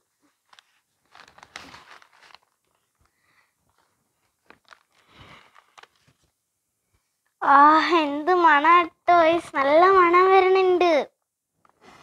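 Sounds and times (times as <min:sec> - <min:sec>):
newspaper rustling: 0:00.4 - 0:06.3.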